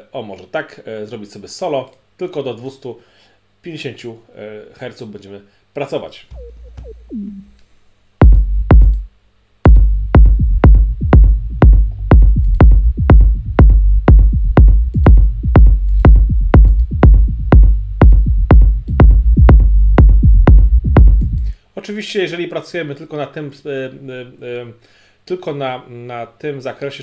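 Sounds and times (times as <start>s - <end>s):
kick drum pattern: 6.3s - 7.5s, 8.2s - 21.6s
electronic sub-bass line: 6.3s - 7.6s, 8.2s - 9.1s, 9.7s - 21.6s.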